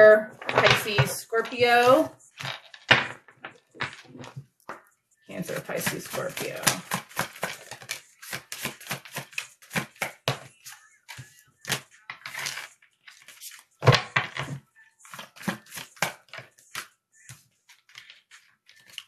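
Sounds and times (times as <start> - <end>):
cards being shuffled: 5.5 - 19.0.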